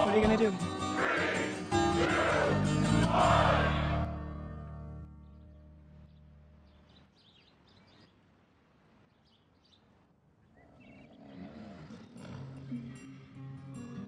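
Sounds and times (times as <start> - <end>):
music: 0.0 - 6.6, 12.2 - 14.0
faint birdsong chirps: 5.1 - 12.5.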